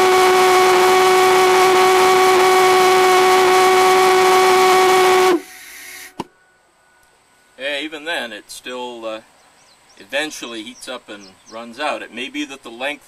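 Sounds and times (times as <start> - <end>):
rushing hiss: 3.9 - 6.3.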